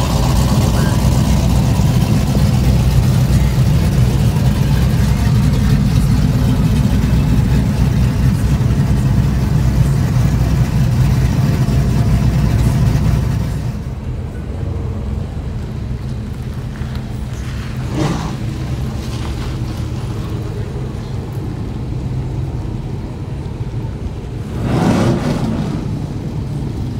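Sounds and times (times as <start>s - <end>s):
vehicle exhaust rumble: 0.0s - 26.9s.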